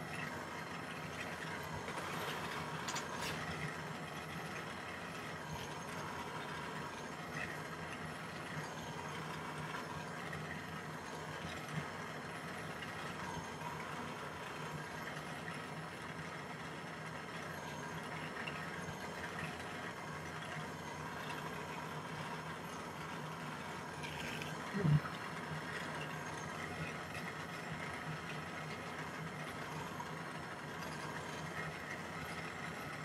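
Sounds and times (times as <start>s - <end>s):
gas torch flame burning: 0.0s - 15.4s.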